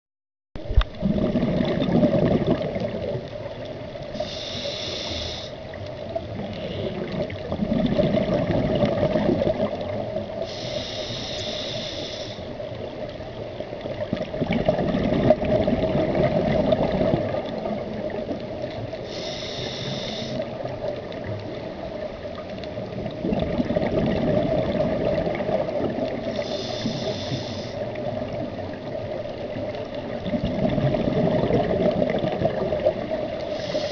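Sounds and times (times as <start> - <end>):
exhaled bubbles burbling: 0.6 - 3.6, 6.1 - 10.4, 13.8 - 18.7, 20.5 - 26.4, 27.8 - 33.6
hiss of inhaled air: 4.2 - 5.6, 10.4 - 12.6, 19.1 - 20.5, 26.3 - 27.8, 33.4 - 33.9.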